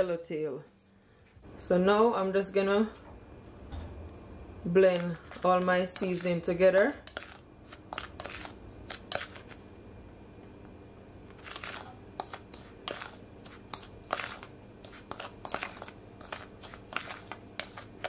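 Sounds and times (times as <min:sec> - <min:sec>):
spoon stirring dry spice: 0:04.7 - 0:09.6, 0:11.3 - 0:18.0.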